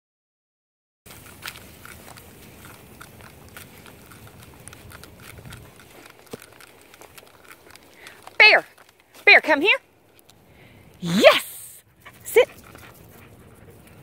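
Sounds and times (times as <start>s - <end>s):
footsteps crunching dry leaves: 1.1s - 9.3s.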